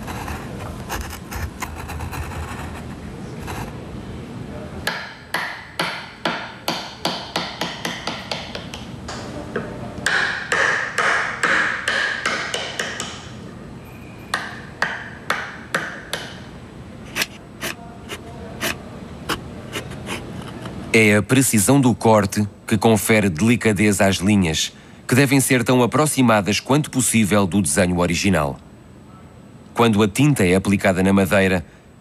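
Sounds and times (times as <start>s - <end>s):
chisel scraping wood: 0.0s - 3.7s, 17.0s - 20.8s
chisel tapping wood: 4.8s - 13.3s, 14.3s - 16.5s, 17.1s - 17.8s.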